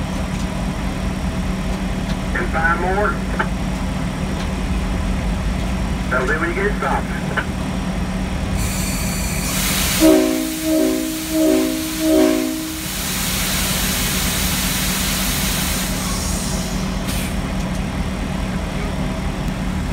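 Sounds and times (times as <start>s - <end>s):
locomotive running hum: 0.0s - 19.9s
air hiss: 8.6s - 11.4s, 12.0s - 17.4s
locomotive air horn blasts: 9.8s - 13.2s.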